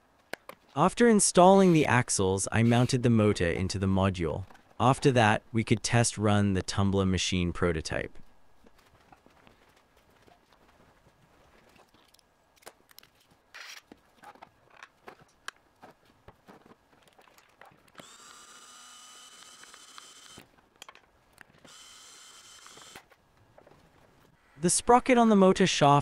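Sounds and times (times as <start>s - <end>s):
small gear motor whining: 18.0s - 20.5s, 21.6s - 23.1s
plastic parts clicking and knocking: 19.6s - 21.8s.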